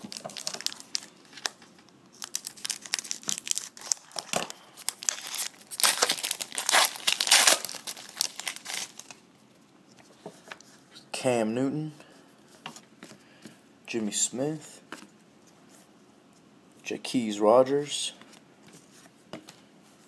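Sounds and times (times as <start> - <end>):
foil wrapper crinkling: 0.0 - 9.2.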